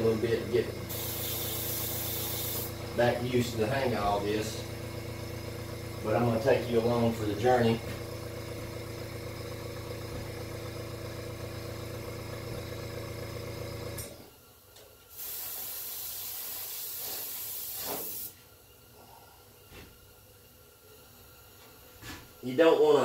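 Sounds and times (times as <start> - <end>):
air compressor motor hum: 0.0 - 23.0
airbrush spraying hiss: 0.9 - 2.8, 15.1 - 18.4.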